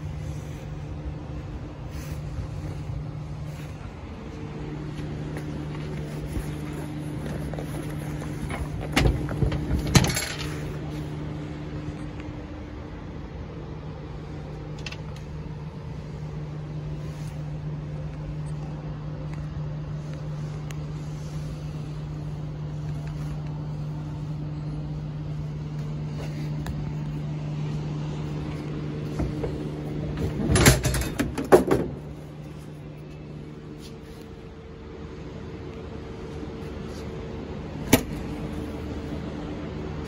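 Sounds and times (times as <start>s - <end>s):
engine idling hum: 0.0s - 40.0s.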